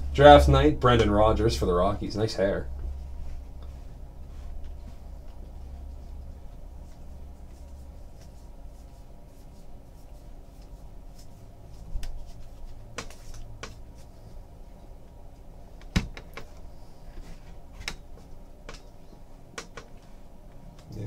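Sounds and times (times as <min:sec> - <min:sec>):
low steady hum: 0:00.0 - 0:21.0
trading cards flipping and clicking: 0:12.9 - 0:13.9.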